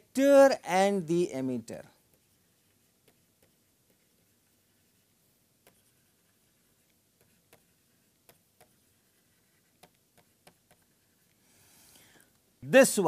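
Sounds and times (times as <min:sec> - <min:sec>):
stylus tapping tablet screen: 0:02.0 - 0:11.4.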